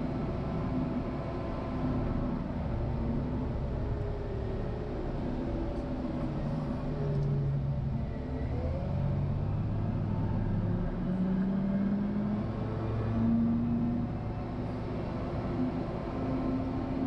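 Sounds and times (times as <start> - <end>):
wheel loader diesel engine: 0.0 - 17.0.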